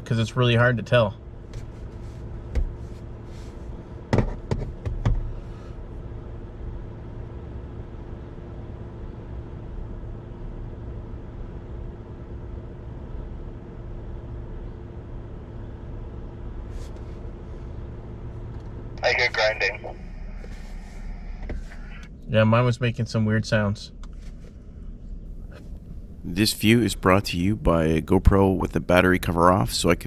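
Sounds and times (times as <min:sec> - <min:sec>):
truck engine running: 0:24.1 - 0:30.0.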